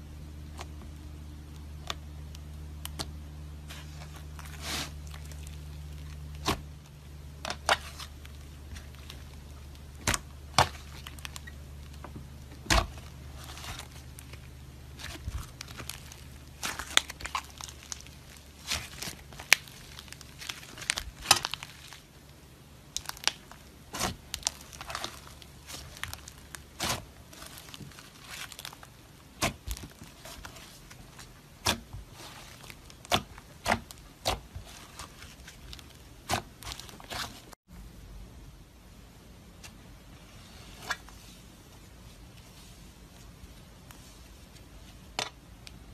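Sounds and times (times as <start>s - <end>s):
faint low hum: 0.0s - 45.9s
hands squishing slime: 7.4s - 12.0s, 12.6s - 22.1s, 22.9s - 37.5s.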